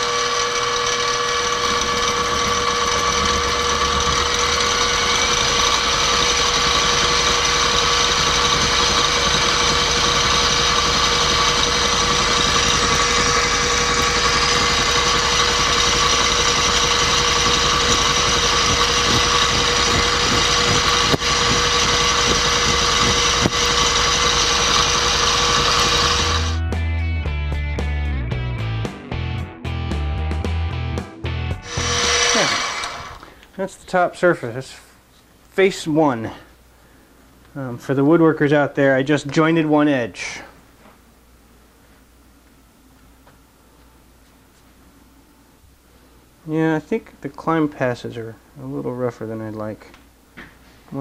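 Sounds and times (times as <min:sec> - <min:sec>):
metal cutting noise: 0:00.0 - 0:26.6, 0:31.6 - 0:33.3
milling machine motor whine: 0:00.0 - 0:26.6, 0:31.6 - 0:33.3
music: 0:26.6 - 0:31.8.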